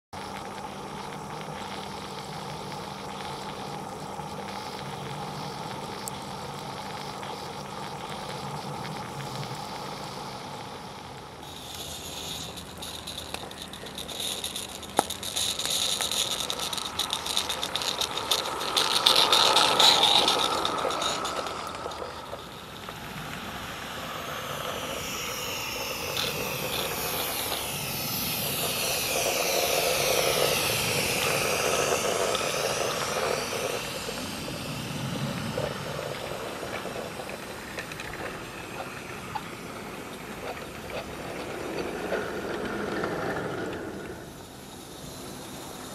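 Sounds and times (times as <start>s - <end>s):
steam hissing: 0.0s - 45.9s
wagon wheels clicking over track: 11.4s - 45.9s.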